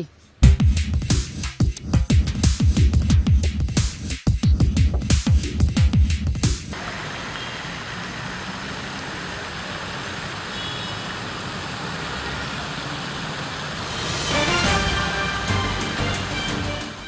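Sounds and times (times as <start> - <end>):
road traffic rushing: 6.7 - 17.0.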